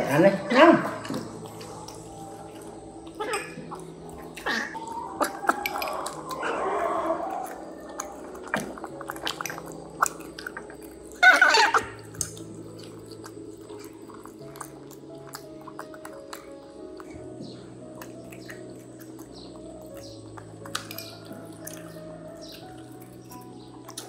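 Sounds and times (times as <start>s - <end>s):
soft background music: 0.0s - 24.0s
utensils clinking on porcelain bowls: 4.5s - 6.4s.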